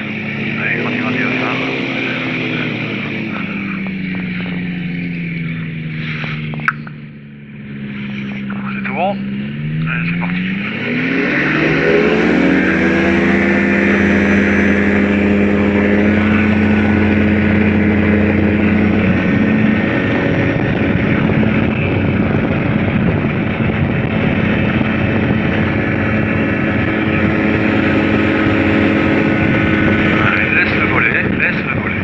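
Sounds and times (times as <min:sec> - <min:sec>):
trike engine at full throttle: 0:00.0 - 0:32.0
wind rushing on microphone: 0:09.9 - 0:32.0.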